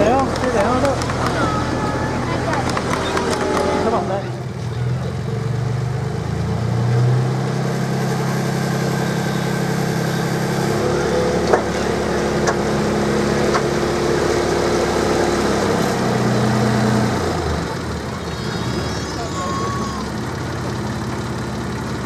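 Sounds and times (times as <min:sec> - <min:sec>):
small diesel locomotive engine: 0:00.0 - 0:22.0.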